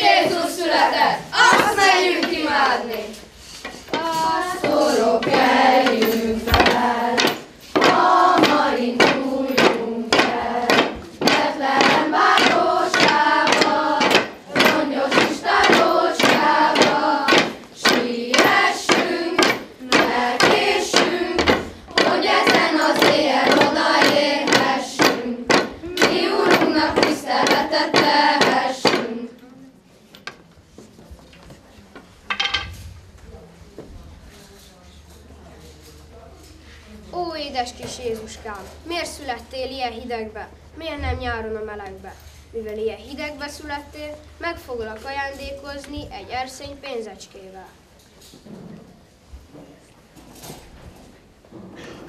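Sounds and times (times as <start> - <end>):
children singing carol: 0.0 - 29.4
wooden staffs knocking on tiles: 3.6 - 29.2, 32.3 - 32.8.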